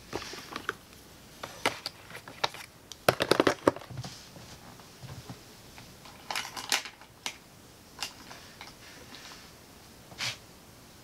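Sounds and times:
plastic items clicking and clattering: 0:00.1 - 0:00.8, 0:01.4 - 0:04.1, 0:06.0 - 0:07.4.

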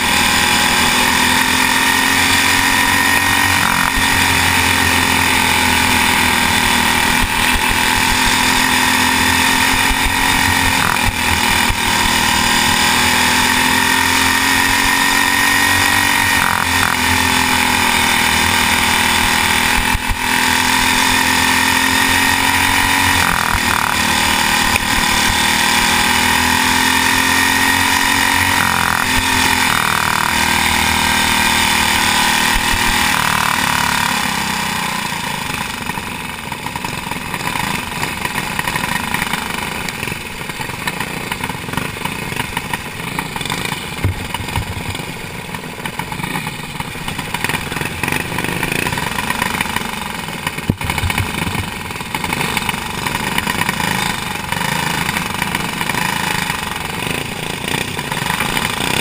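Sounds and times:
kart engine revving: 0:00.0 - 0:59.0.

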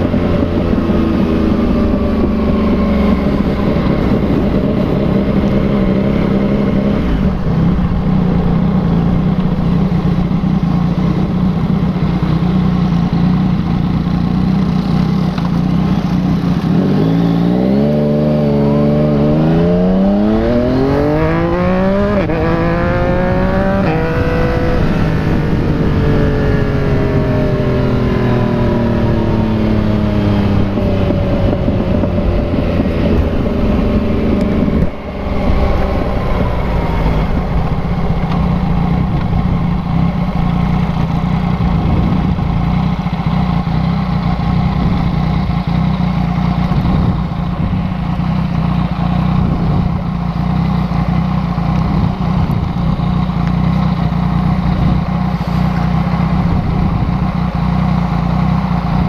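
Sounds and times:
motorcycle engine revving and idling: 0:00.0 - 0:59.0.

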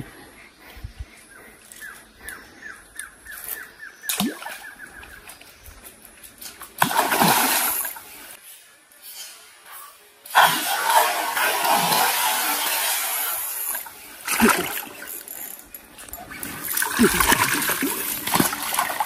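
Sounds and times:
water splashing in creek: 0:04.0 - 0:05.4, 0:06.5 - 0:08.4, 0:10.3 - 0:19.0.

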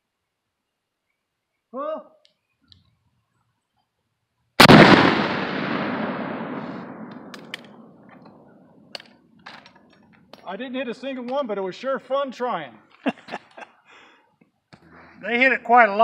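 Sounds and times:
shotgun shot with echo: 0:04.6 - 0:08.0.

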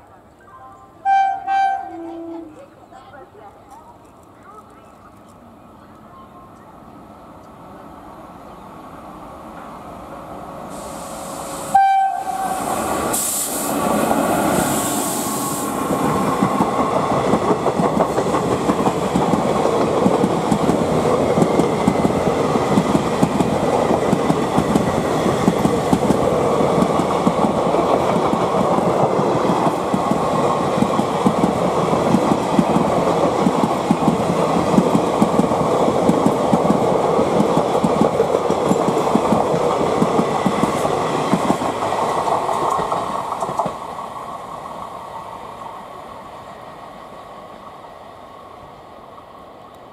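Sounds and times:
locomotive horn toot: 0:01.0 - 0:02.6, 0:11.7 - 0:12.6
train wheels clattering over rail joints: 0:16.4 - 0:43.8.

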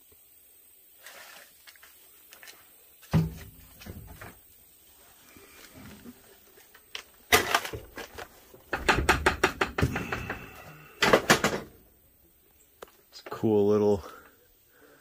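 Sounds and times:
hard objects knocking and banging: 0:08.7 - 0:11.7.

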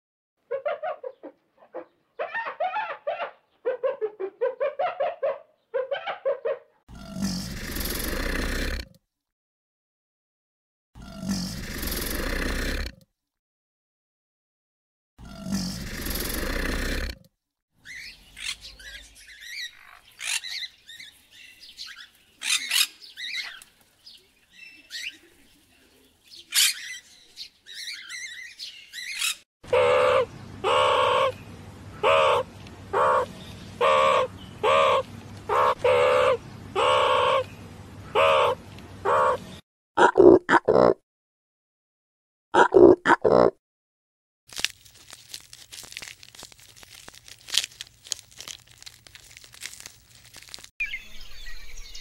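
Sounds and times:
macaws chirping and squawking: 0:00.5 - 0:08.3, 0:17.8 - 0:23.7, 0:26.4 - 0:39.6
loud harsh bird call: 0:27.7 - 0:39.6
low steady hum: 0:29.7 - 0:36.8.

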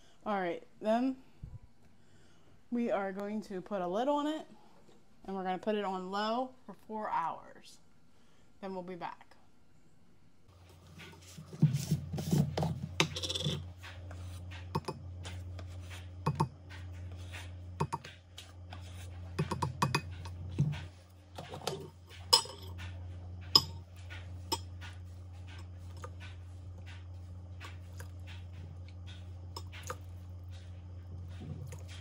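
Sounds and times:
steady low hum: 0:00.0 - 0:32.0
clicks taps and scrapes on containers: 0:11.1 - 0:30.7.

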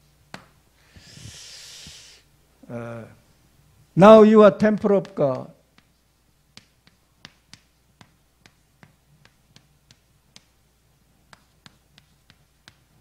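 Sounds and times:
chalk tapping on chalkboard: 0:04.6 - 0:13.0.

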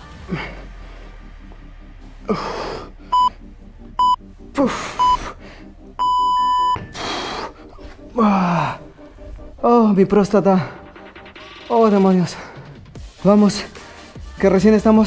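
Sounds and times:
breathy exhalations: 0:00.0 - 0:03.5, 0:04.5 - 0:09.8
long timer beep: 0:03.1 - 0:03.3, 0:04.0 - 0:04.2, 0:05.0 - 0:05.2, 0:06.0 - 0:06.8
timer beeps: 0:03.1 - 0:03.3, 0:04.0 - 0:04.2, 0:05.0 - 0:05.2, 0:06.0 - 0:06.9.

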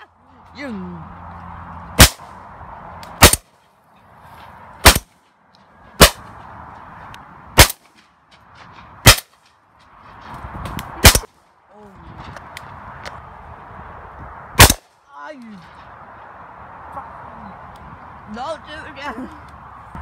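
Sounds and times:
outdoor background noise: 0:00.0 - 0:20.0
shotgun shots: 0:02.0 - 0:02.3, 0:03.2 - 0:03.5, 0:04.8 - 0:05.1, 0:06.0 - 0:06.2, 0:07.6 - 0:07.8, 0:09.0 - 0:09.3, 0:11.0 - 0:11.3, 0:14.6 - 0:14.9.

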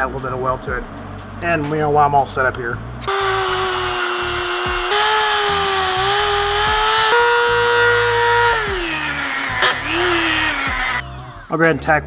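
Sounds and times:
rotary tool high whine: 0:03.0 - 0:11.5.

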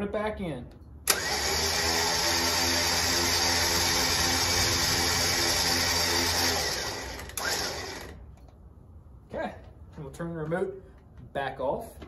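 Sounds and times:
electric winch motor whine: 0:01.0 - 0:08.2.

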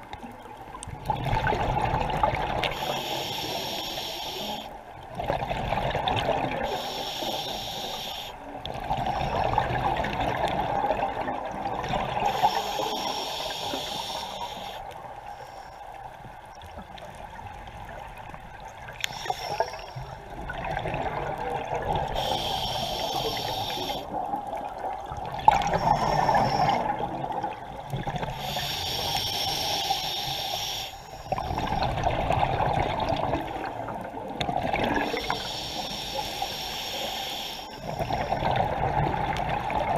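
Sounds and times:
exhaled bubbles gurgling: 0:00.0 - 0:15.1, 0:16.3 - 0:39.9
scuba regulator hissing inhale: 0:02.6 - 0:04.8, 0:06.6 - 0:09.5, 0:12.2 - 0:15.9, 0:19.0 - 0:20.3, 0:22.0 - 0:24.2, 0:25.6 - 0:27.0, 0:28.2 - 0:31.9, 0:34.9 - 0:38.5.

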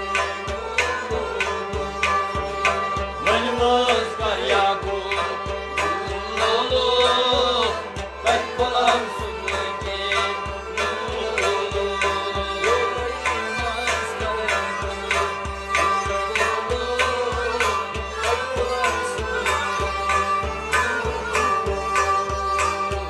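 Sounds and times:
drum steady beat: 0:00.0 - 0:23.0
person singing: 0:00.8 - 0:23.0.

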